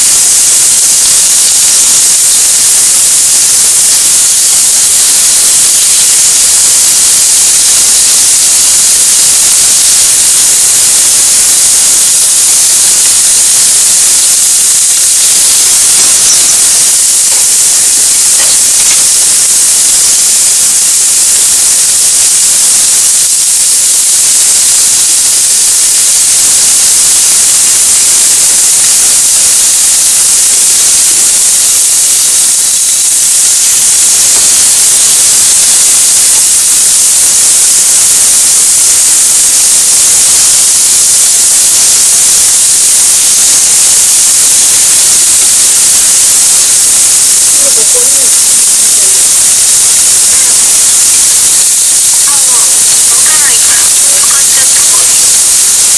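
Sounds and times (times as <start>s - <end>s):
meat sizzling in hot oil: 0.0s - 55.9s.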